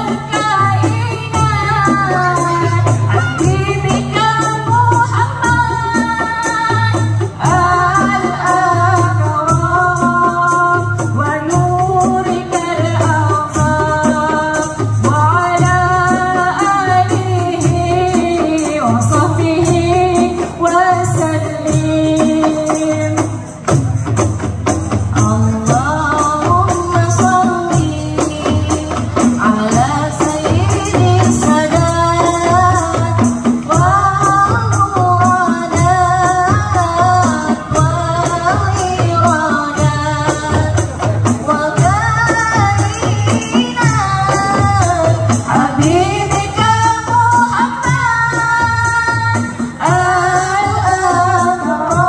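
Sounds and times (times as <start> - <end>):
frame drums beating: 0.0 - 52.0
women singing in unison: 0.0 - 52.0.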